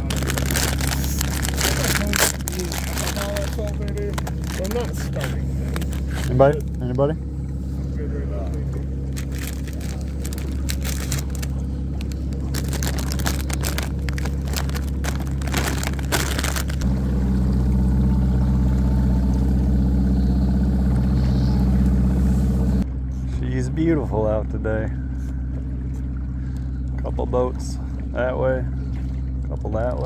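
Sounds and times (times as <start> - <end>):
plastic bag crackling: 0.0 - 6.8, 9.0 - 16.9
outboard motor running: 0.0 - 30.0.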